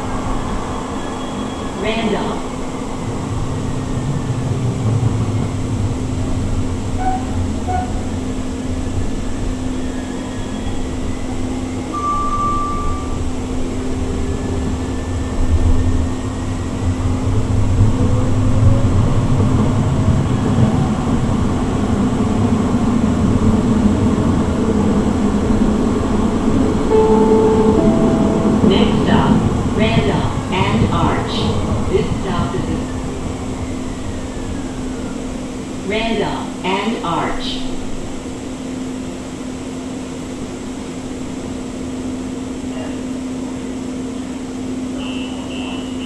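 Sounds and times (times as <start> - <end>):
train wheels rumbling on track: 0.0 - 36.6.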